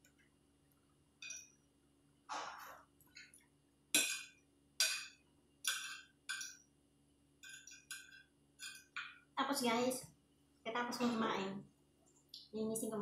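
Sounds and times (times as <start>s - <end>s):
cutlery clinking on ceramic plate: 4.0s - 6.6s.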